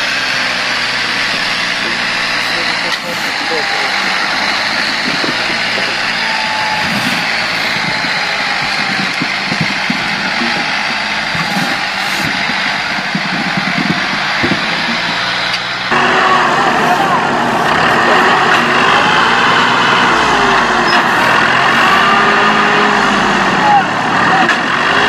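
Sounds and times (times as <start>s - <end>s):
tractor diesel engine under load: 0.0s - 25.0s.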